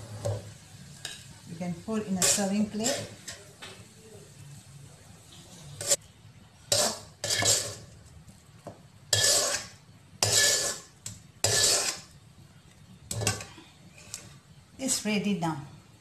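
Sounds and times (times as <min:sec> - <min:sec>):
metal spatula scraping wok: 0:02.0 - 0:03.5, 0:05.7 - 0:06.0, 0:06.7 - 0:08.0, 0:09.1 - 0:12.2, 0:13.1 - 0:14.3.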